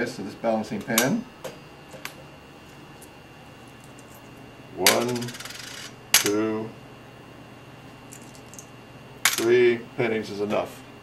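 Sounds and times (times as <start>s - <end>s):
coins clinking into metal pan: 4.9s - 6.3s.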